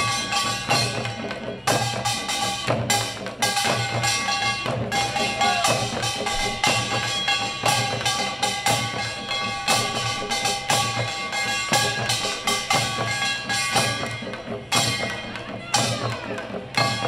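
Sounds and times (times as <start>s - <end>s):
percussion troupe drumming: 0.0s - 17.0s
steady ringing tones: 0.0s - 17.0s.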